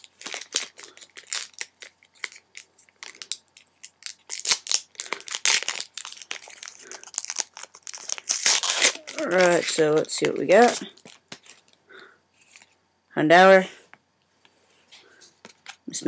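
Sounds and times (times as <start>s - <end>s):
plastic packaging crinkling and tearing: 0.0s - 11.8s.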